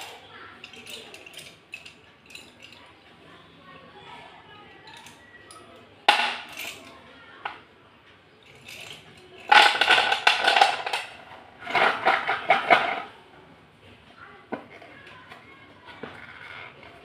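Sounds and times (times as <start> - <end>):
slate pencils clinking on plate: 0.0 - 3.0, 4.8 - 7.6, 8.4 - 13.1.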